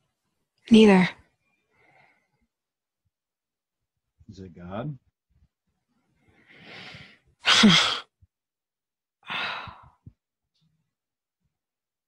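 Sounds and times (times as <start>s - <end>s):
person breathing: 1.7s - 2.4s, 6.2s - 7.3s, 9.2s - 10.1s.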